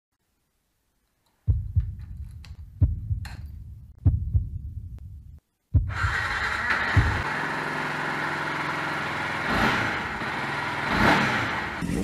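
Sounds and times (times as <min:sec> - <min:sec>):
heartbeat thumps: 0:01.5 - 0:06.2, 0:07.0 - 0:07.2
motorcycle starter cranking: 0:05.9 - 0:07.4.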